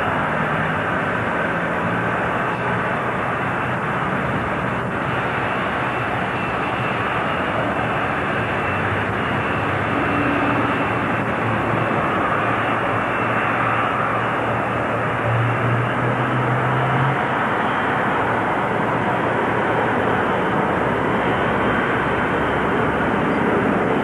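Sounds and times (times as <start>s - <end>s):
jet engines running: 0.0s - 24.0s.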